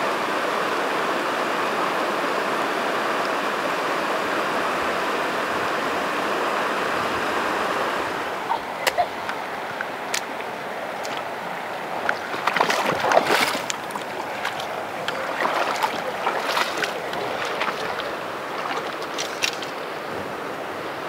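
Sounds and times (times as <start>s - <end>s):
river flowing over rocks: 0.0s - 21.0s
close scuffs and clicks: 12.1s - 19.8s.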